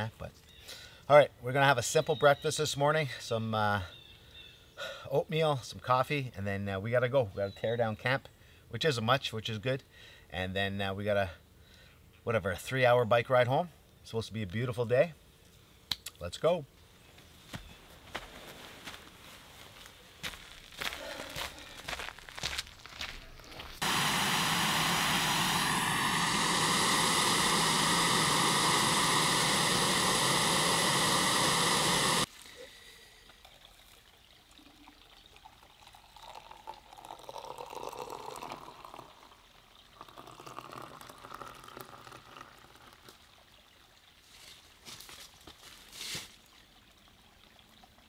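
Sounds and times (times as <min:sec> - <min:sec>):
water pouring into a pot: 0:23.8 - 0:32.5, 0:33.2 - 0:44.5.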